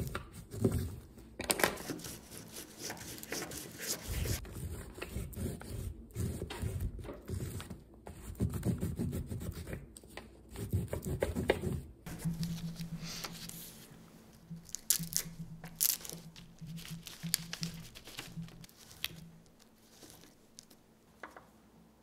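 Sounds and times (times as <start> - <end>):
crayon scratching on paper: 1.8 - 9.8
dry leaves rustling and crackling: 14.6 - 20.8.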